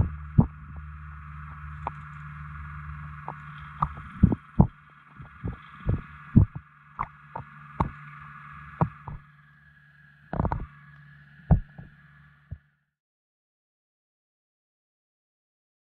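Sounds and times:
muffled underwater knocks and thumps: 0.0s - 0.8s, 3.3s - 8.0s, 8.8s - 9.2s, 10.4s - 10.7s, 11.5s - 11.9s
steady hum: 0.0s - 12.8s.

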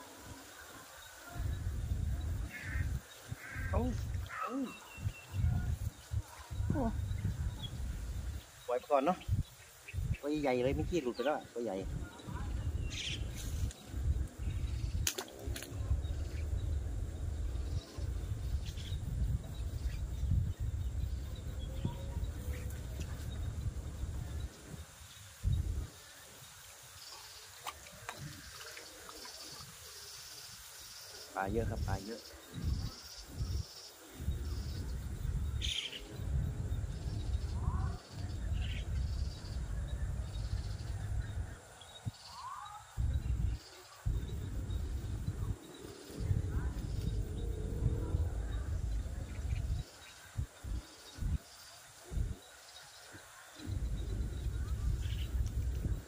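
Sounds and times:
faint bird chirps: 0.1s - 15.1s, 15.7s - 56.0s
low microphone rumble: 5.0s - 8.4s, 15.7s - 25.9s, 43.0s - 51.4s, 53.6s - 56.0s.

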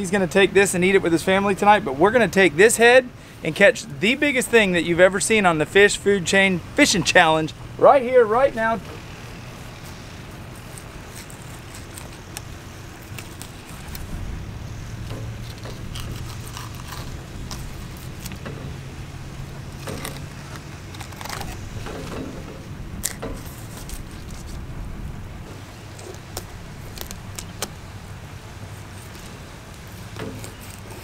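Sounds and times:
low steady hum: 0.0s - 31.0s
knife scraping fish scales: 9.7s - 14.0s, 15.4s - 18.4s.

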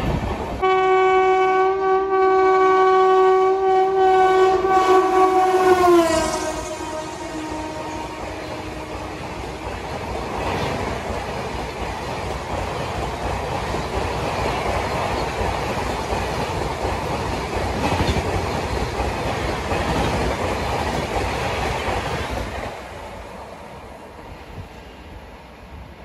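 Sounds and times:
train rushing past: 0.0s - 26.0s
wheels clattering over rail joints: 9.5s - 22.6s.

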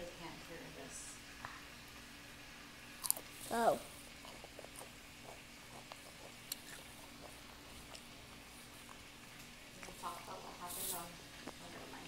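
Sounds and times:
child chewing crunchy treat: 2.9s - 10.0s.

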